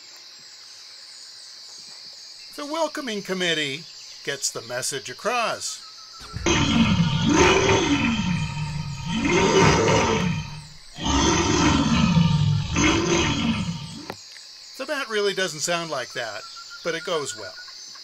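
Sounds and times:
big cat roaring: 0:06.2 - 0:14.2.

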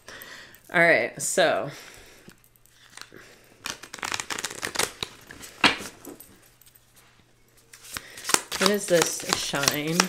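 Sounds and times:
cards being shuffled: 0:02.8 - 0:06.2, 0:07.7 - 0:10.0.

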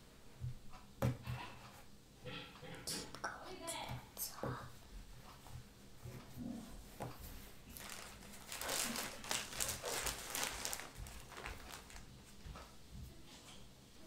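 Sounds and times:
plastic bag crinkling: 0:07.6 - 0:12.1.

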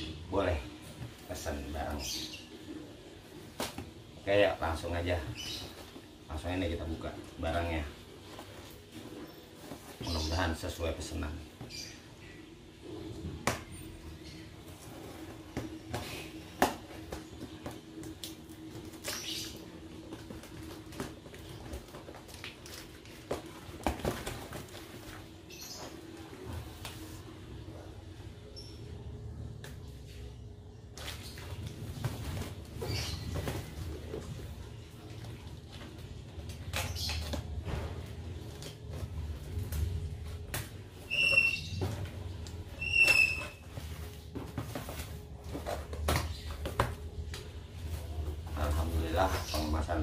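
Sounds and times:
cardboard rustling and tapping: 0:14.6 - 0:27.2, 0:30.9 - 0:50.0.

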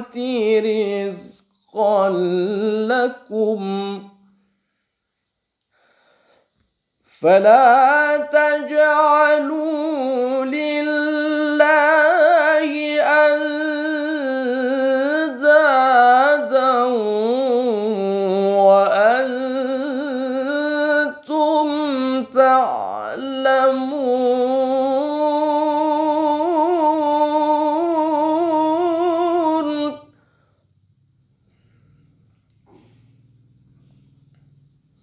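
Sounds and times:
man reciting melodically: 0:00.0 - 0:04.4, 0:07.0 - 0:30.2.

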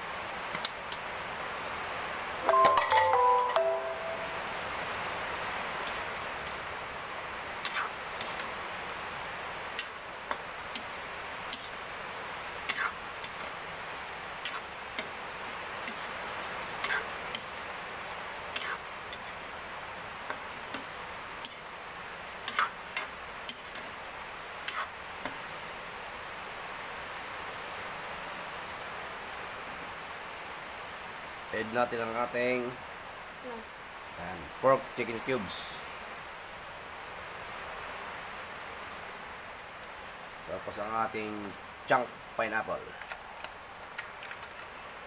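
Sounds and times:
food sizzling hiss: 0:03.4 - 0:43.0
spatula scraping a wok: 0:07.6 - 0:08.5, 0:12.7 - 0:13.5, 0:14.4 - 0:14.7, 0:16.8 - 0:17.4, 0:18.5 - 0:19.4, 0:22.4 - 0:23.9, 0:24.6 - 0:25.0.

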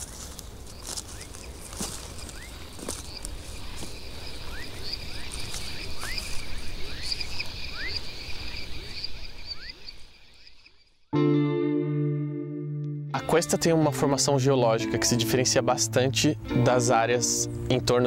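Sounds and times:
insects trilling: 0:00.0 - 0:11.0.

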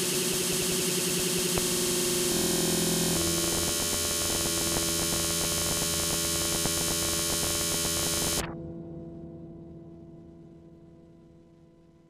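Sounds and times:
fast stuttering clicks: 0:00.0 - 0:08.5
low hum: 0:00.0 - 0:08.5
noisy synth drone: 0:00.0 - 0:08.5
steady low tones: 0:00.0 - 0:08.5.

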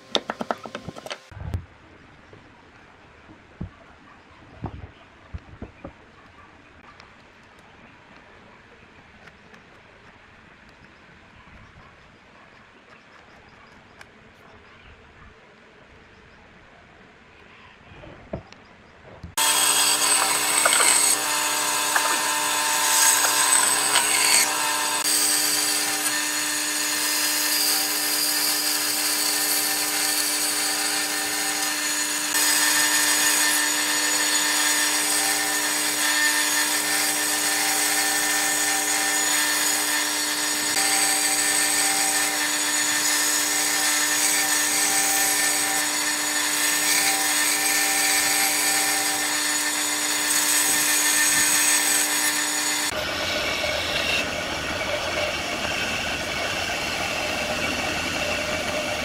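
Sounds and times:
band saw cutting wood: 0:19.3 - 0:59.0.

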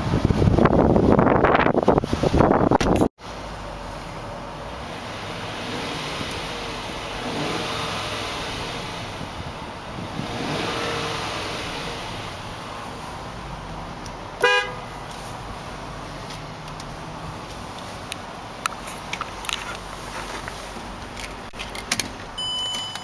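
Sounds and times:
car engine revving: 0:03.3 - 0:17.5
car horn blast: 0:14.4 - 0:14.9.

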